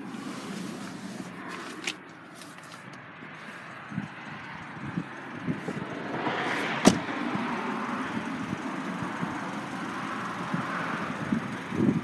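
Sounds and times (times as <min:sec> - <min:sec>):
car door shutting: 0:06.6 - 0:07.1.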